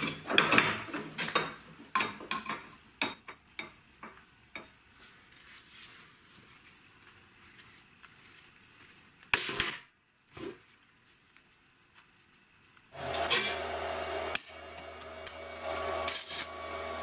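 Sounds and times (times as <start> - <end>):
cutting disc grinding metal: 13.0 - 17.0.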